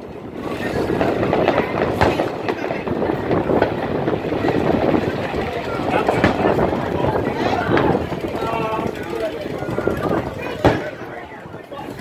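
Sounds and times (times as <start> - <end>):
fireworks crackling and popping: 0.0 - 12.0
firework bang: 0.3 - 8.3, 10.5 - 11.2.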